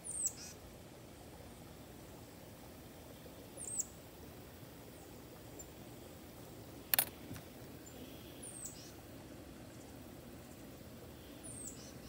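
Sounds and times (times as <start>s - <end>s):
faint outdoor background: 0.0s - 12.0s
metal tools clicking: 6.9s - 7.1s.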